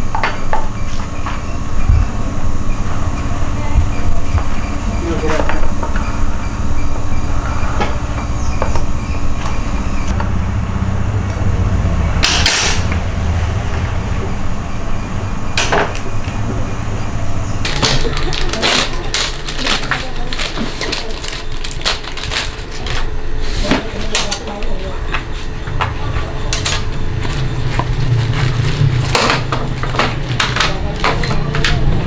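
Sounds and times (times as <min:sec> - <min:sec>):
low mechanical hum: 0:00.0 - 0:32.0
hand tools clinking metal: 0:17.7 - 0:22.0.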